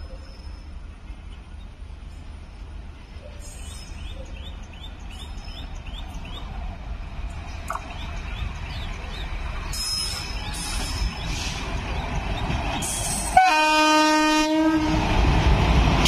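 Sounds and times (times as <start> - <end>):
train rumbling on rails: 0.0 - 16.0
bird chirping: 3.4 - 6.6, 7.4 - 12.6.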